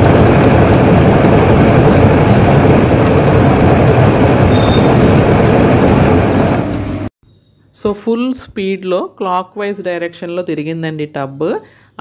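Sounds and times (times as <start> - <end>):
washing machine drum spinning: 0.0 - 7.1.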